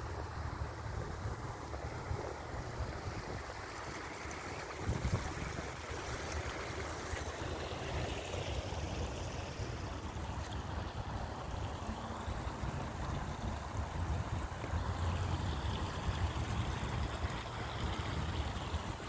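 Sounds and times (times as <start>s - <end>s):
water trickling over rocks: 0.0s - 19.0s
wind buffeting microphone: 0.2s - 6.8s.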